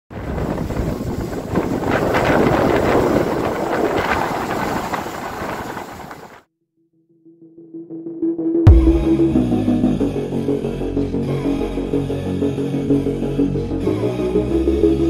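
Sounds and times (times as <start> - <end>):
wind buffeting the microphone: 0.1 - 6.4
rushing water: 0.2 - 6.4.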